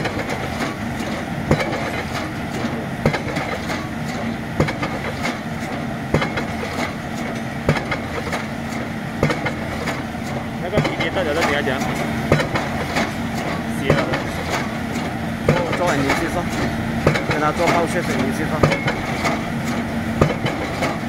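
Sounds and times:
rig engine humming: 0.0s - 21.0s
pile hammer blows: 9.2s - 21.0s.

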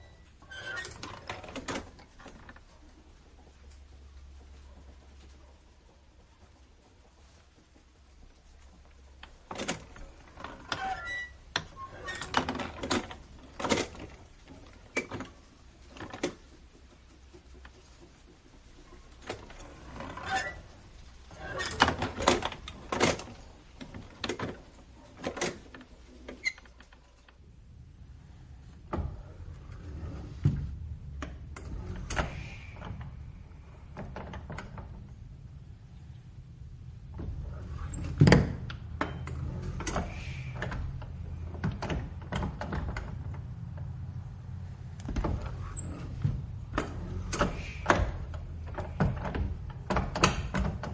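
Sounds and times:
hinge squeaking: 0.0s - 2.5s, 9.5s - 15.4s, 18.8s - 23.4s, 45.1s - 50.9s
screen door banging and rattling: 0.4s - 3.1s, 3.9s - 27.2s, 28.8s - 35.4s, 37.1s - 50.9s.

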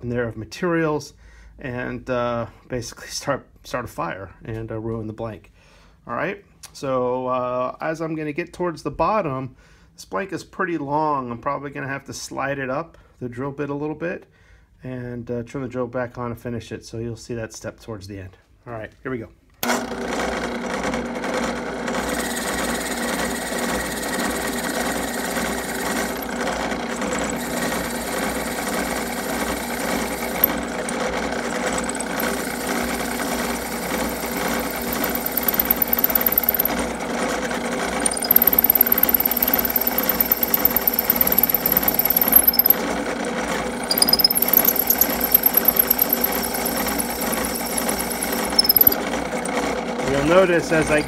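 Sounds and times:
drill press running: 19.6s - 50.9s
drill bit squealing in wood: 22.2s - 36.8s, 37.9s - 42.8s, 43.8s - 49.6s.

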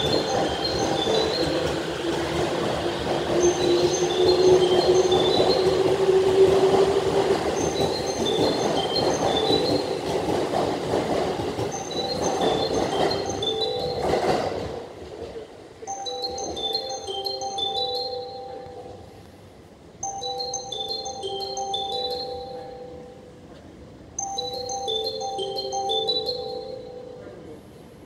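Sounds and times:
chime tune: 0.0s - 2.2s, 3.4s - 6.0s, 7.5s - 10.4s, 11.6s - 14.7s, 15.9s - 19.3s, 20.0s - 23.6s, 24.2s - 27.8s
train wheels rumbling on rail: 0.0s - 16.9s.

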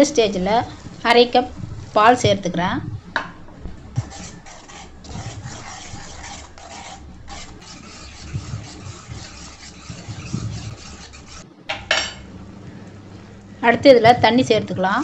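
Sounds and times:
liquid simmering: 3.0s - 11.5s
metal spoon scraping a pan: 4.0s - 12.3s.

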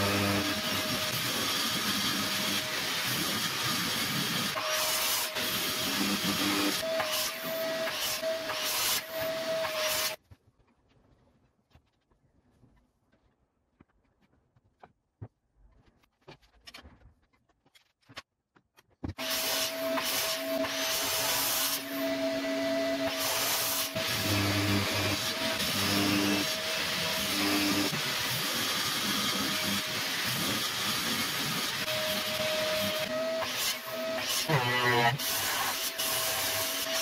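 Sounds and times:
table saw cutting wood: 0.0s - 10.2s, 19.2s - 37.0s.

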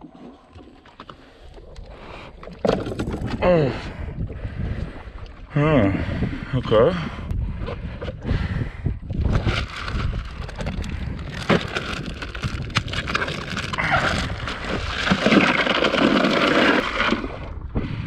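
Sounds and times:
ice rattling and crunching: 9.2s - 17.5s
plastic bag crinkling: 9.6s - 16.8s.

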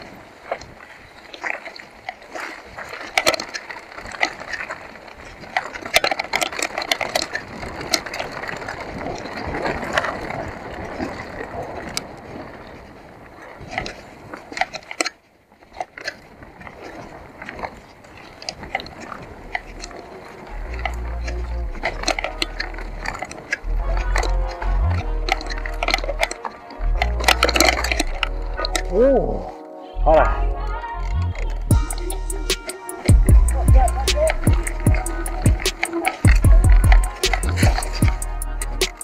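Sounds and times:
bike clacking over bumps: 0.0s - 29.0s, 31.0s - 39.0s
bike chain and frame rattling: 0.0s - 29.1s, 31.0s - 39.0s
bike tyres rolling over dirt: 0.0s - 39.0s.

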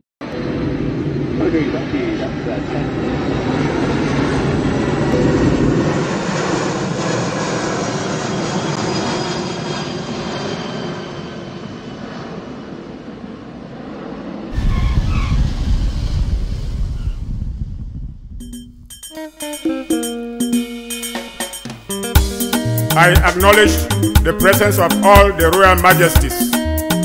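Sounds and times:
jet engine rushing and whining: 0.2s - 23.0s
deep low rumble: 14.6s - 18.9s.

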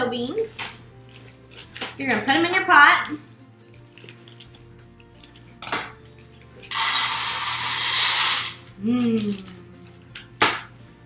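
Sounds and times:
dry beans pouring into pot: 6.7s - 8.6s.

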